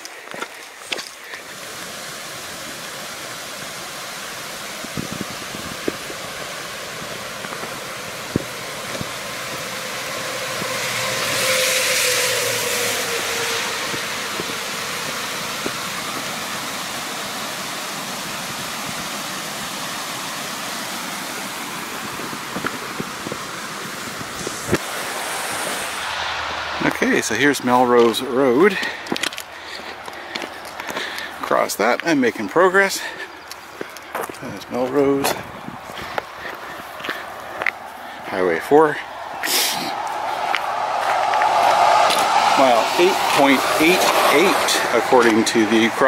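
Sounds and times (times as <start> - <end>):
highway traffic hissing: 0.0 - 46.0
vehicle passing close: 5.4 - 17.7, 23.9 - 31.4, 36.2 - 46.0.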